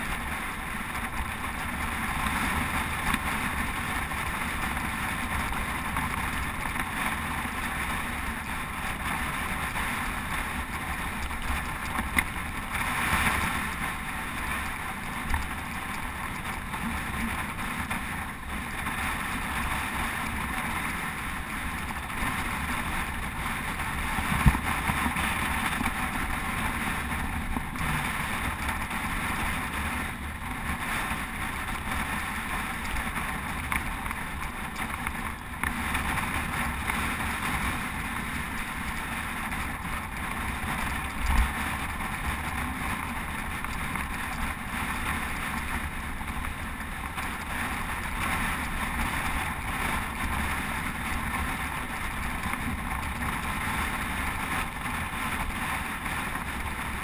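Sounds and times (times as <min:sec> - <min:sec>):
bicycle road noise: 0:00.0 - 0:57.0.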